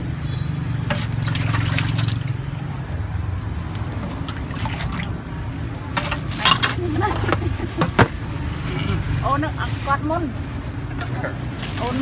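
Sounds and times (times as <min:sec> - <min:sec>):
liquid sloshing in a pot: 0:00.8 - 0:02.7, 0:03.8 - 0:07.3.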